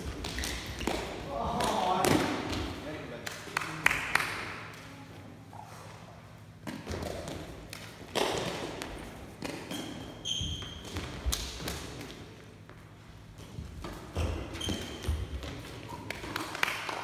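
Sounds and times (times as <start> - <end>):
shoe squeaks on gym floor: 9.6 - 11.0, 14.1 - 15.4.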